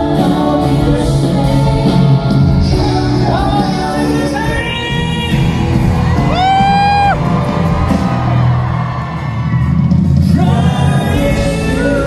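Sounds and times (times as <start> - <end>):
person singing: 0.0 - 5.7, 10.2 - 12.0
live band music with bass: 0.0 - 12.0.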